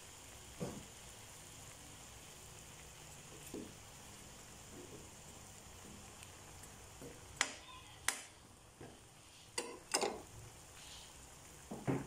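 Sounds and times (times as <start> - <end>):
metal spoon tapping pan: 9.6 - 10.3.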